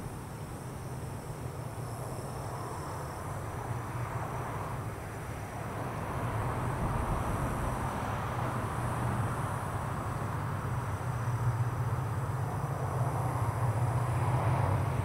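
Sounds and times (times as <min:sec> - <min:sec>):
locomotive engine drone: 0:00.0 - 0:15.0.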